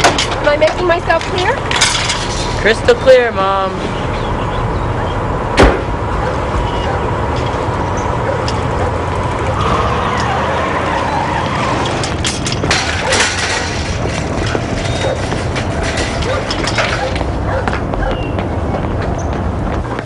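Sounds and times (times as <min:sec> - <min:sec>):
car and traffic hum: 0:00.0 - 0:20.0
car door slamming: 0:05.6 - 0:06.0.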